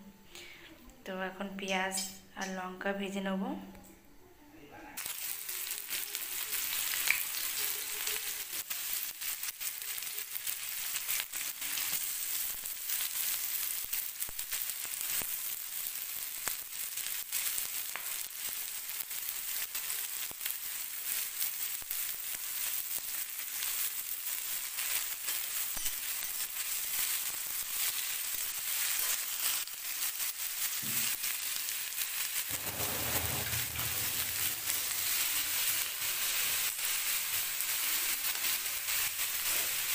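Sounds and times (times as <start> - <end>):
onions sizzling in hot oil: 5.0 - 39.9
metal spatula scraping pan: 32.5 - 35.3.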